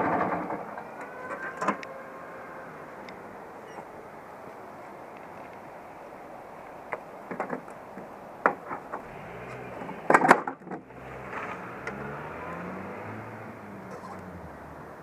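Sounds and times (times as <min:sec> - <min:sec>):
knocks and clatters on scooter: 0:00.0 - 0:01.8, 0:07.2 - 0:12.0
low background noise: 0:00.0 - 0:15.0.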